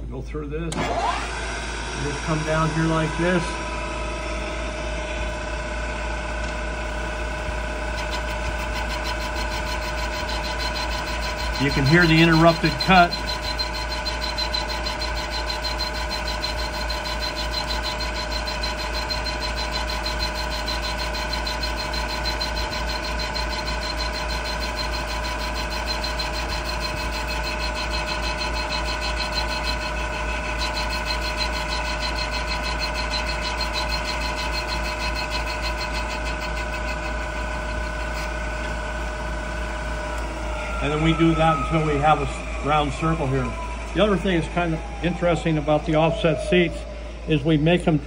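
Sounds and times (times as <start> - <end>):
milling machine whine: 0.7 - 48.0
cutter rattling: 7.5 - 38.4.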